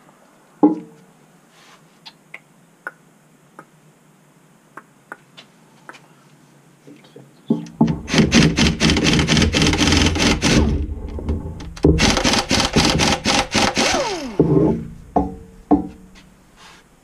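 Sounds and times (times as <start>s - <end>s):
pneumatic wrench hammering: 7.6s - 10.9s, 11.6s - 16.1s.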